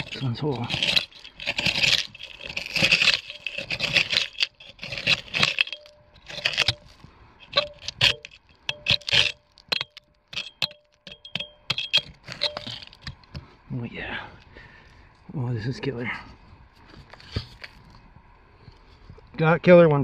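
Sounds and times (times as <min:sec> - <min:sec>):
hand hoe chopping stony soil: 0:00.0 - 0:13.4
gravel rattling: 0:00.0 - 0:13.6.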